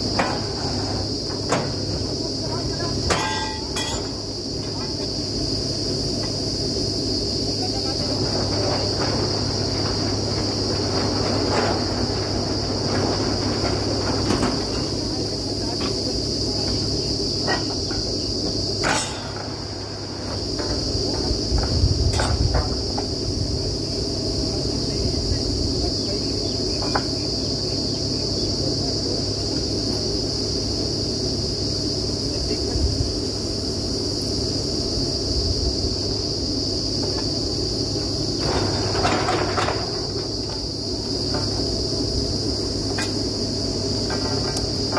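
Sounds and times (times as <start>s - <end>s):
sharp metal clanks: 3.1s - 4.2s, 18.8s - 19.6s.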